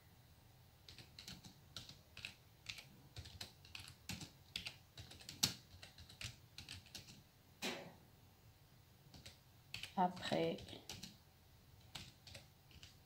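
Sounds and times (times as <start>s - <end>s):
computer keyboard key clicks: 0.9s - 7.2s, 9.1s - 10.0s, 11.8s - 13.0s.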